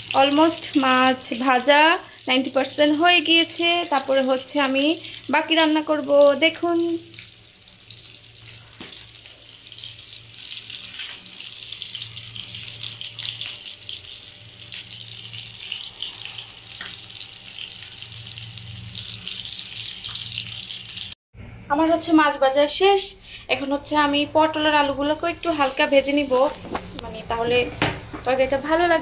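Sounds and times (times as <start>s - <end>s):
fish sizzling on griddle: 0.0s - 21.2s.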